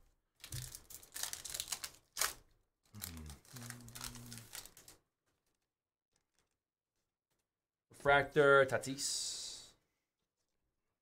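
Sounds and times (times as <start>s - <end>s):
sharp wrapper crackle: 0.4s - 5.0s
cards and wrappers rustling: 0.4s - 7.5s.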